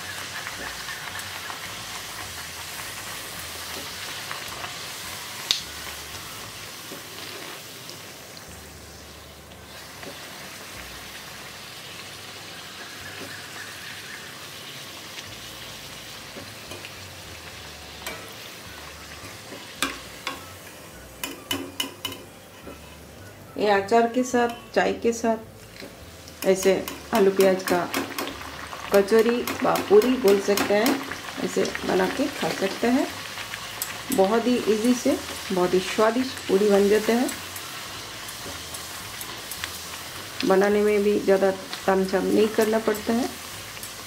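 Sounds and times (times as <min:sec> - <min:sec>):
oil sizzling: 0:00.0 - 0:44.0
steel spoon clinking on pan: 0:18.0 - 0:18.4, 0:21.2 - 0:22.8, 0:26.4 - 0:28.4, 0:37.1 - 0:39.8, 0:42.5 - 0:44.0.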